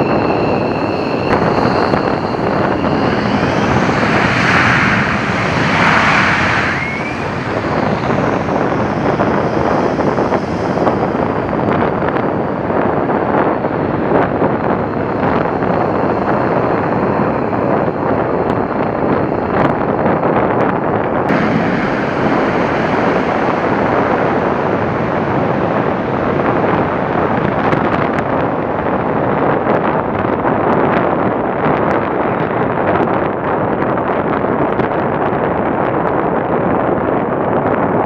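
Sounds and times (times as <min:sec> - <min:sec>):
jet engine roar: 0:00.0 - 0:34.9.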